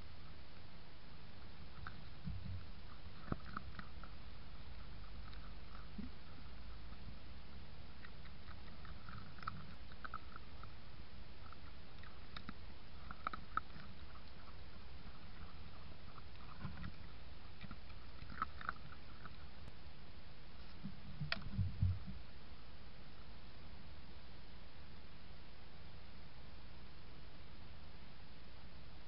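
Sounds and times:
animals chewing in leaf litter: 1.4 - 19.7.

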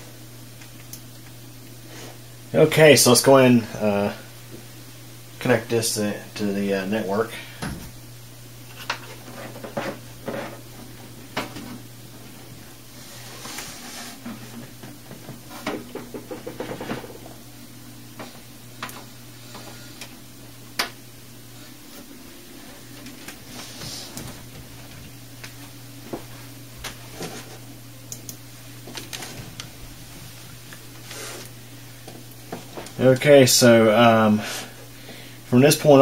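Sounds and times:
computer hum: 0.0 - 36.0.

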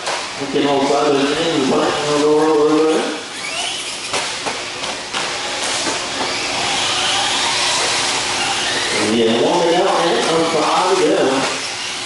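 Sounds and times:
rc car motors hissing: 3.3 - 4.4, 5.4 - 12.0.

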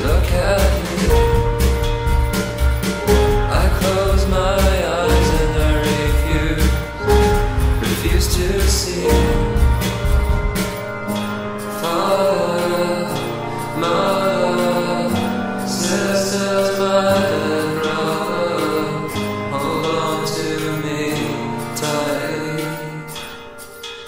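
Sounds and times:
stepping bass line: 0.0 - 11.4
slow sustained chords: 0.9 - 23.6.

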